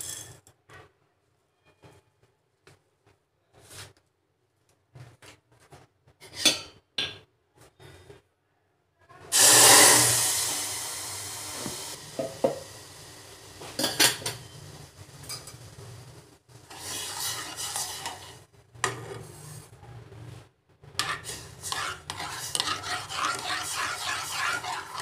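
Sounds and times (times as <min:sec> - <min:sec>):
water sizzling in hot saucepan: 0:09.3 - 0:18.5, 0:21.1 - 0:25.0
spoon scraping while stirring: 0:16.6 - 0:18.5, 0:20.9 - 0:25.0.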